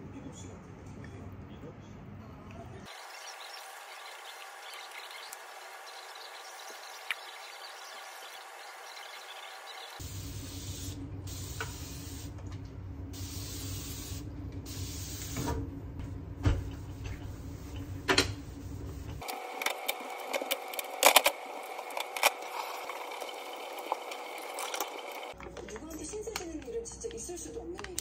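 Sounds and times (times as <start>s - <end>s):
spray bottle hissing: 13.2s - 15.4s.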